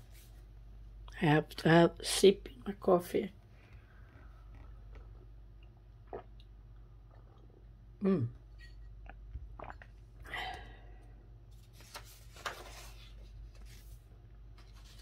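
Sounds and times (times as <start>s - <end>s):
magazine page rustling: 11.5s - 15.0s.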